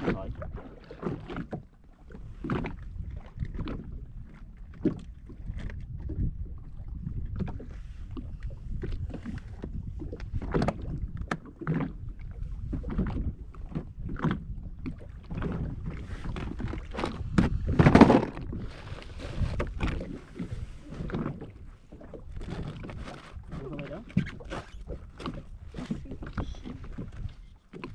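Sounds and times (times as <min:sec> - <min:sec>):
water slapping against hull: 0:00.0 - 0:27.9
knocks on hull: 0:16.4 - 0:18.6.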